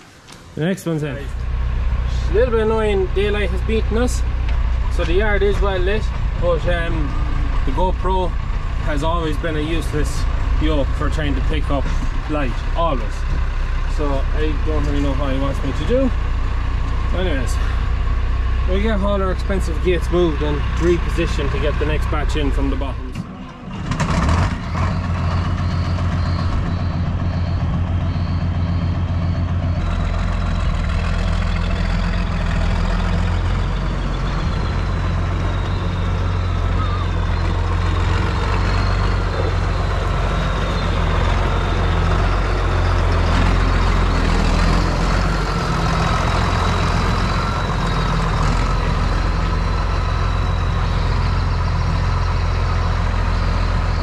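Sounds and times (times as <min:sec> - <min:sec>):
diesel tractor engine running: 0:00.0 - 0:54.0.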